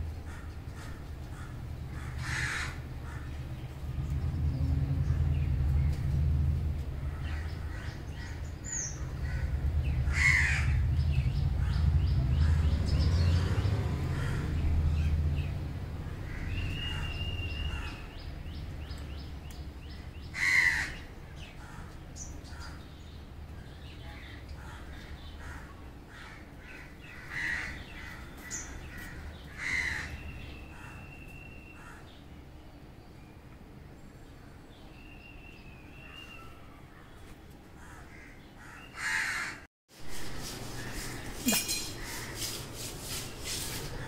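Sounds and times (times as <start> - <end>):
crows cawing: 0.2 - 3.4, 9.0 - 10.8, 14.1 - 14.5, 20.4 - 22.0, 24.6 - 31.0, 37.8 - 39.7
low rumble: 3.0 - 7.7.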